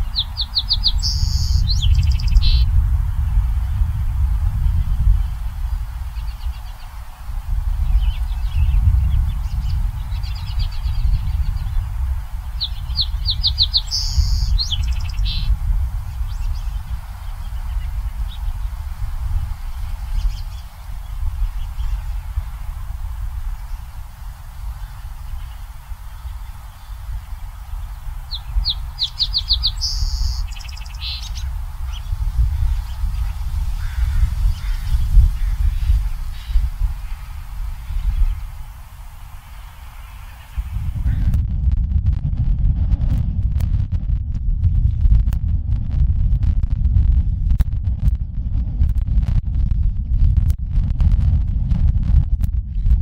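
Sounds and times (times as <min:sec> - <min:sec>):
sparrow singing: 0:00.0 - 0:02.8, 0:04.6 - 0:41.3
low rumble: 0:00.0 - 0:53.0.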